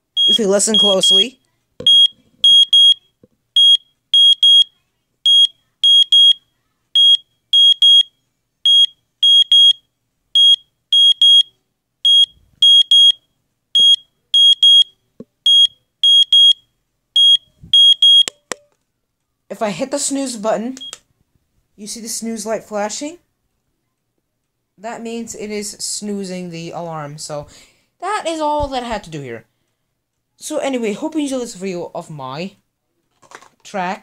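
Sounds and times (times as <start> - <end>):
alarm clock beeping: 0.2 - 4.7, 5.3 - 6.4, 7.0 - 8.1, 8.7 - 9.8, 10.4 - 11.5, 12.1 - 13.2, 13.8 - 14.9, 15.5 - 16.6, 17.2 - 18.5.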